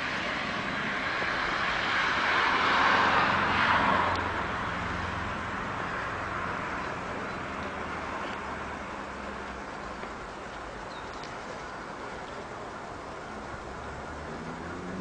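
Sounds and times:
vehicle passing by: 0:00.0 - 0:10.8, 0:11.4 - 0:15.0.

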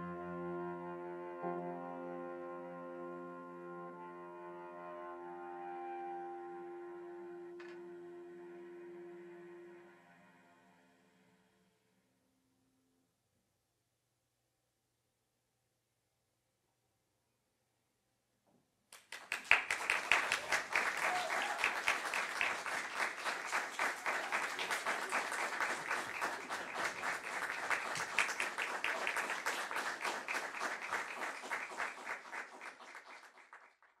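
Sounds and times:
audience applauding: 0:19.0 - 0:34.0.

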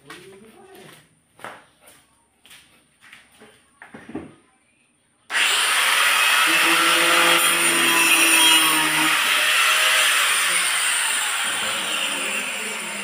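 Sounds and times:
power tool running: 0:05.3 - 0:13.0.

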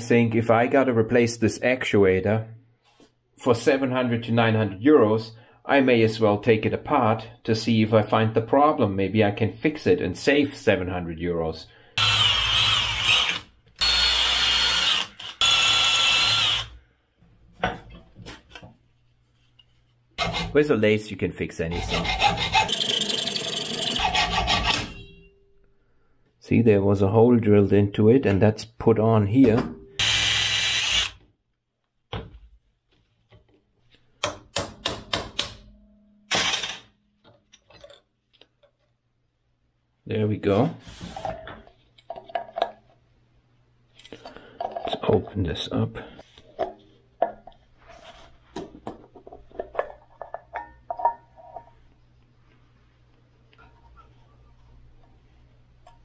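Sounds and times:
power tool whining: 0:12.0 - 0:16.8.

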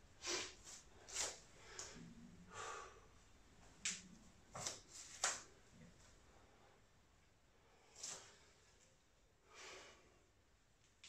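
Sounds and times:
man breathing sharply: 0:01.6 - 0:03.2.

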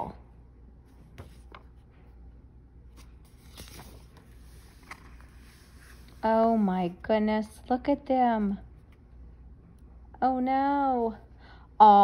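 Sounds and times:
book page turning: 0:01.0 - 0:02.1, 0:02.9 - 0:06.6.

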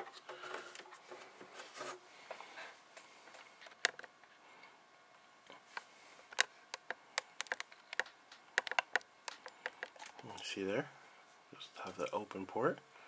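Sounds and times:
plastic cable connector clicks: 0:06.4 - 0:09.9.

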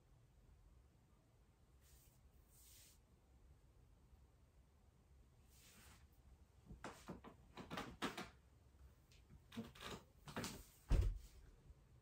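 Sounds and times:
rustling and shuffling on mat: 0:01.8 - 0:03.0, 0:05.4 - 0:07.8, 0:10.3 - 0:11.6.

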